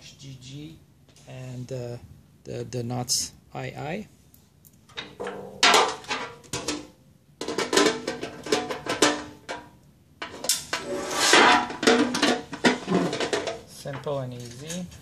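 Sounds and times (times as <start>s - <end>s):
metal lid knocking and rattling: 4.9s - 14.1s.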